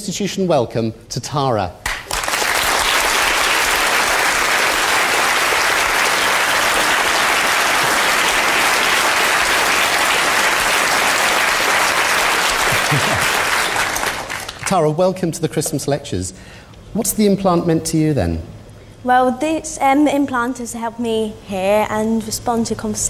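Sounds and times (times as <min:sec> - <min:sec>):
audience applauding: 0:01.8 - 0:14.8.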